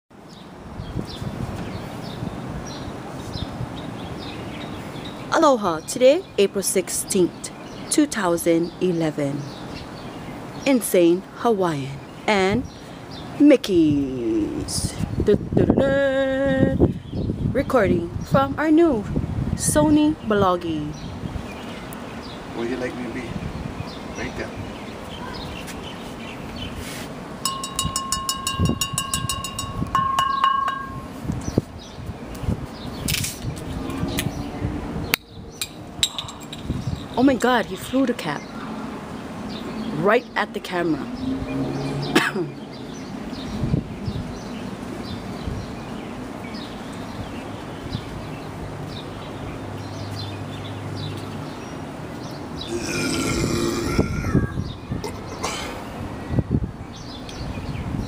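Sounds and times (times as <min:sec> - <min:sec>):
wind chimes ringing: 0:27.4 - 0:31.2
man belching loudly: 0:52.7 - 0:54.6.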